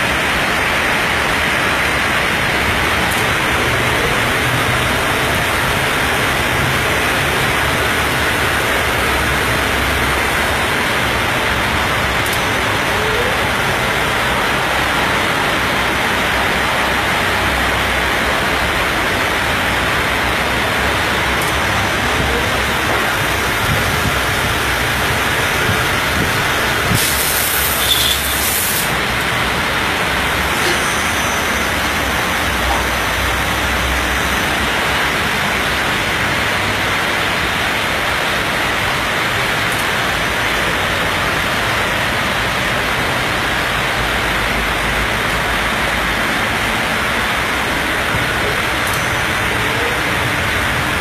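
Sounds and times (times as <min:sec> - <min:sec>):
steady rushing noise: 0:00.0 - 0:51.0
brief high hiss: 0:26.9 - 0:29.0, 0:30.4 - 0:32.2.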